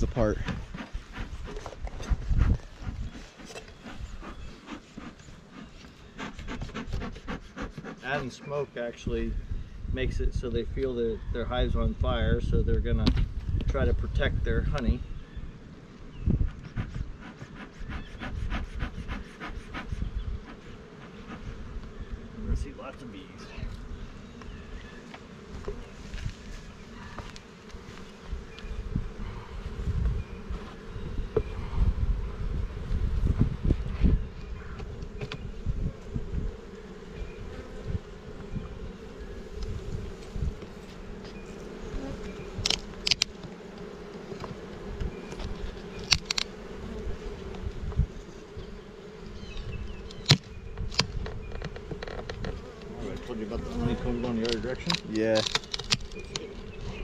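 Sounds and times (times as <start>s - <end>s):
bees buzzing: 0.0s - 9.9s, 15.0s - 57.0s
hive tool scraping metal: 0.2s - 8.7s, 34.8s - 47.6s, 48.3s - 57.0s
tool clicking and scraping on wood: 45.3s - 46.5s, 54.4s - 56.6s.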